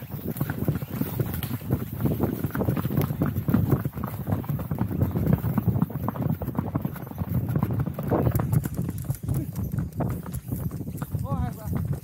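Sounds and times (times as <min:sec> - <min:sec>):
horse hoofbeats on dirt: 0:00.0 - 0:12.0.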